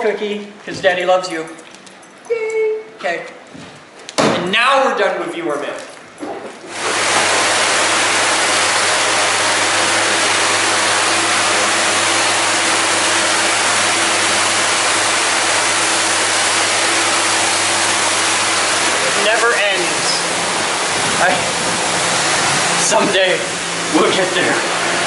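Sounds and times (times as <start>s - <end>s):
motor humming: 6.7s - 25.0s
pressure washer water spray hissing: 6.7s - 25.0s.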